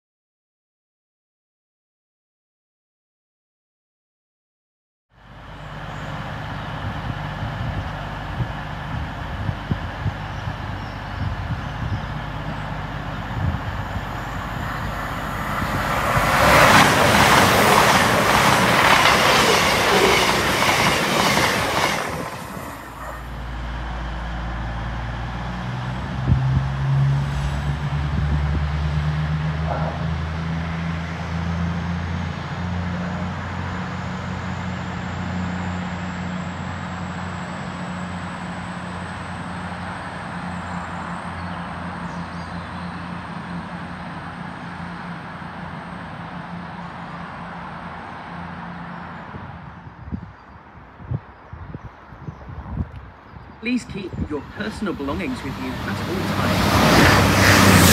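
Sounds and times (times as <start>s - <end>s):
low diesel engine hum: 5.1s - 20.6s, 22.4s - 50.2s, 53.6s - 57.9s
train wheels rushing on rails: 6.1s - 28.4s, 54.4s - 57.9s.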